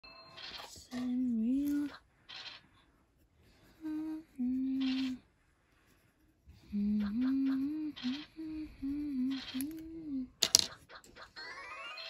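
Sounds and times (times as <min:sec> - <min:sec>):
woman humming: 0:03.8 - 0:05.2, 0:06.7 - 0:10.4.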